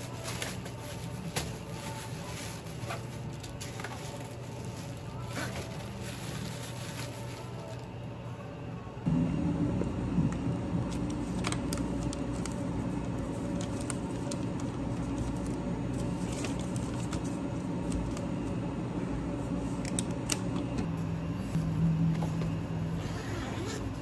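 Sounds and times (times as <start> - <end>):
foil bag and paper rustling: 0.0 - 8.1, 10.9 - 18.2
low hum of cafe equipment: 0.0 - 24.0.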